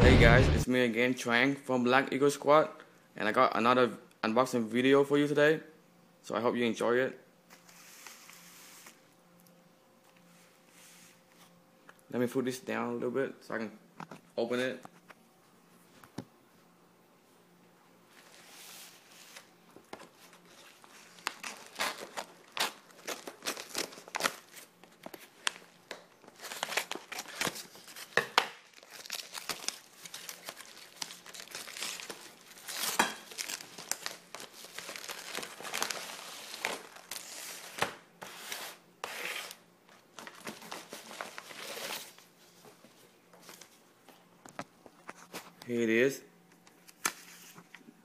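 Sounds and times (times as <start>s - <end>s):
envelope tearing and crinkling: 20.3s - 42.2s.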